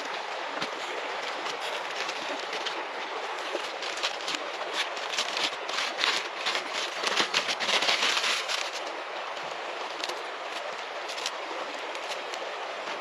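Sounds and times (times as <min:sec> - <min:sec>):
aluminium foil crackling: 0:03.4 - 0:09.0, 0:09.9 - 0:12.4.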